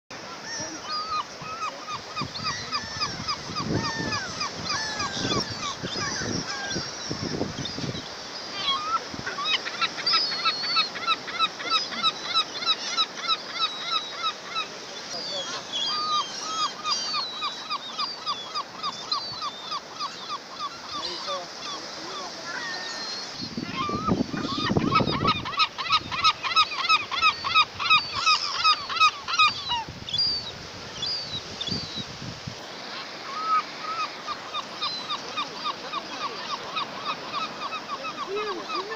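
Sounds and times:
seabirds calling: 0.1 - 38.9.

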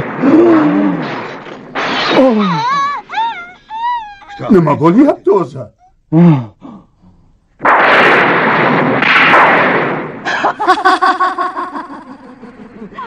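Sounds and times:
person laughing: 10.3 - 13.0.

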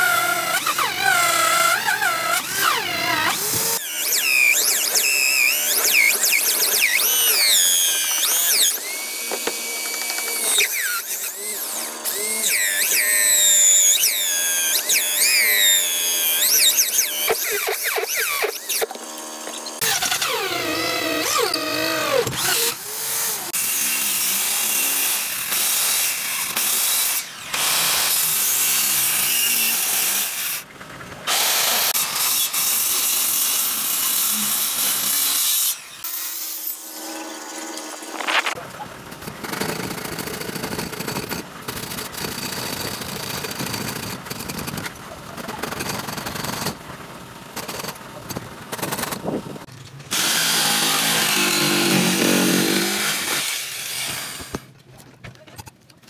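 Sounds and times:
electric drill boring into wood: 0.0 - 30.6, 31.3 - 38.6, 50.1 - 54.7
circular saw cutting wood: 0.0 - 30.7, 31.3 - 38.7, 47.6 - 54.7.

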